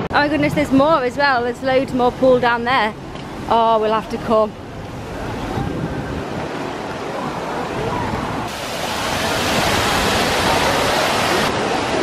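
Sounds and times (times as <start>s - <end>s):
waterfall pouring into pool: 8.5s - 12.0s.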